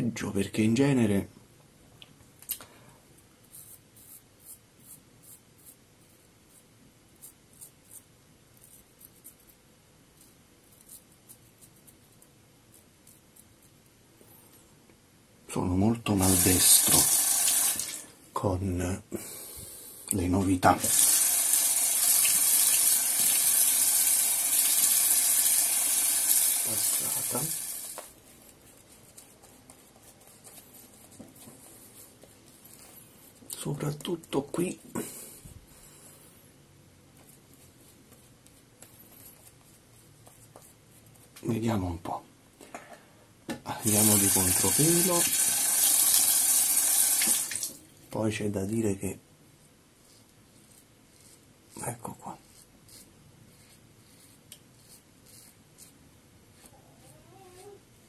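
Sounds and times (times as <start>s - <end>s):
sink tap running: 16.3s - 18.0s, 20.8s - 28.0s, 44.0s - 47.8s.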